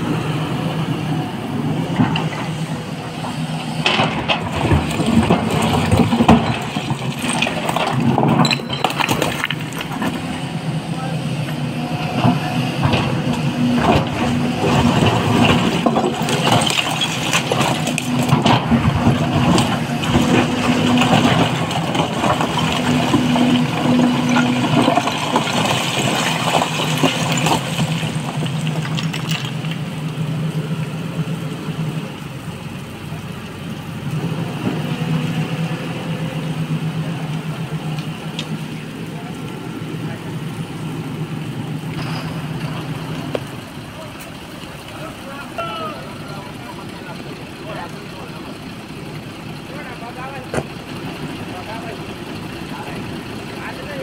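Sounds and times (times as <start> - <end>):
excavator diesel engine running: 0.0 - 54.0
rock clattering and scraping: 3.9 - 10.3, 13.8 - 29.9.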